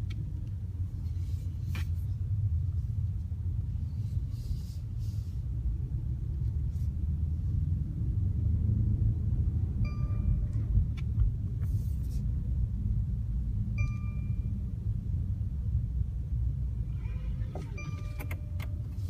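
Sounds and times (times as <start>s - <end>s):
car cabin engine rumble: 0.0s - 19.0s
short electronic chimes: 16.9s - 18.6s.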